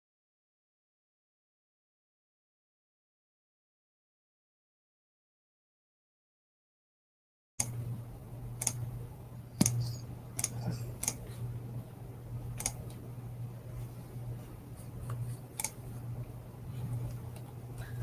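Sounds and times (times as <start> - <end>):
low electrical hum: 7.6 - 18.0
sharp clicks: 8.6 - 8.8, 9.6 - 9.8, 10.4 - 11.2, 12.6 - 13.0, 15.5 - 15.8.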